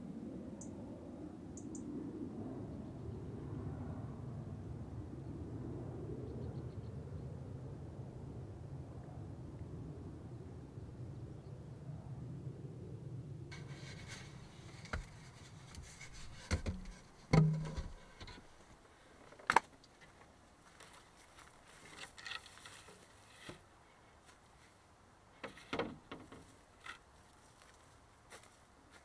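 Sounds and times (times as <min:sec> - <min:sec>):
low steady hum: 0:06.3 - 0:29.0
objects knocking and rubbing: 0:13.5 - 0:18.6.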